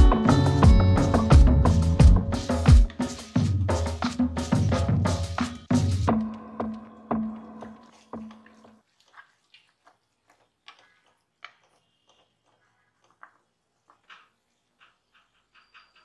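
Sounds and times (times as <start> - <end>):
background music with drum beat: 0.0 - 8.4.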